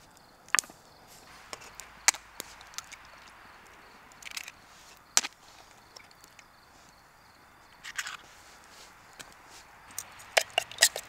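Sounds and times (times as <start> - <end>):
sharp cracks and snaps: 0.0 - 7.0, 7.7 - 11.0
faint steady background noise: 0.0 - 11.0
light ticks: 7.7 - 11.0.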